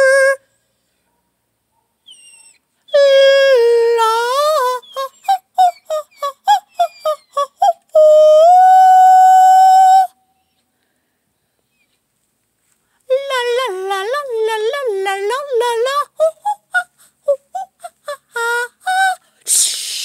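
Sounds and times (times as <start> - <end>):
high voice singing or howling: 0.0 - 0.5, 2.9 - 10.4.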